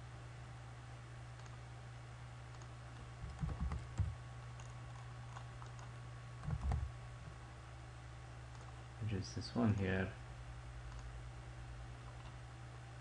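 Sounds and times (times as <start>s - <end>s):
low electrical hum: 0.0s - 13.0s
computer mouse clicks: 1.4s - 1.6s, 2.5s - 6.9s, 8.5s - 8.8s, 10.9s - 11.1s, 12.0s - 12.4s.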